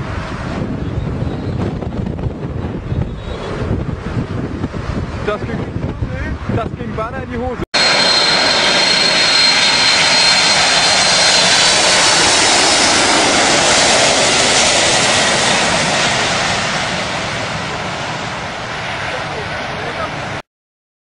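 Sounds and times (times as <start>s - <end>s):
jet engines passing overhead: 0.0s - 20.4s
thin high whine: 7.8s - 14.0s.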